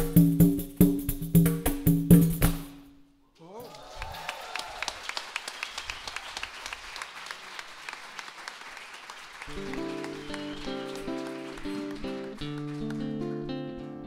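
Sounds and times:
audience applauding: 3.6s - 14.0s
guitar playing notes and chords: 9.5s - 14.0s.

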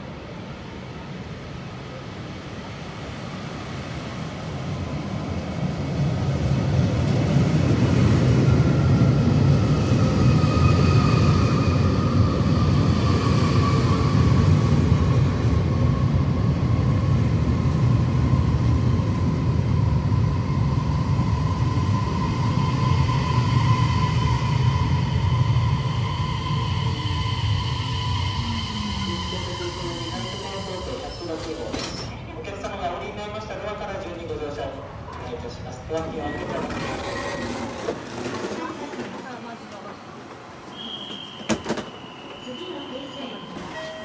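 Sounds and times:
electric train rumble: 0.0s - 34.0s.

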